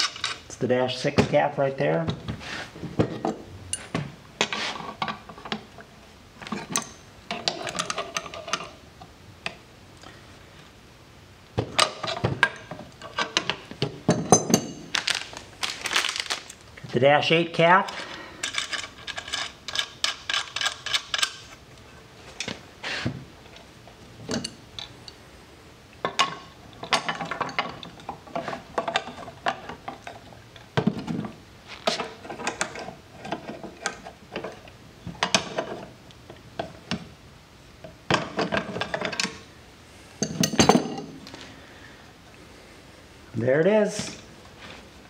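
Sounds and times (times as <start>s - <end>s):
wrenches clicking on metal: 18.4s - 21.5s.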